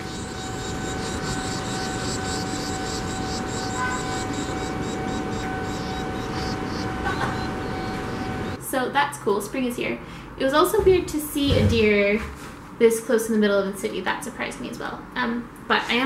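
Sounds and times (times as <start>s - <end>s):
nestlings chirping: 0.0s - 8.6s
steady hum: 0.0s - 8.9s.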